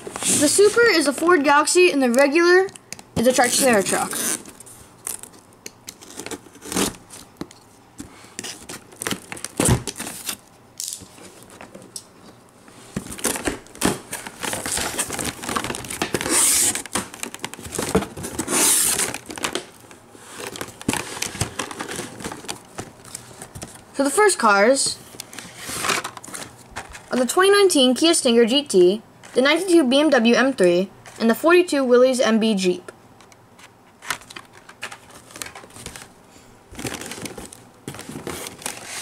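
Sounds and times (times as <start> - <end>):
tape and cardboard tearing: 3.2 - 7.2, 13.2 - 19.7
box cutter slitting tape: 5.9 - 7.0, 16.0 - 17.0, 18.4 - 19.3.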